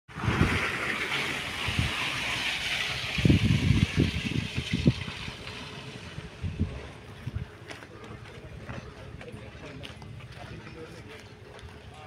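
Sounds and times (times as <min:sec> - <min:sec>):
tyres hissing through mud: 0:00.1 - 0:07.2
car engine: 0:00.1 - 0:07.3.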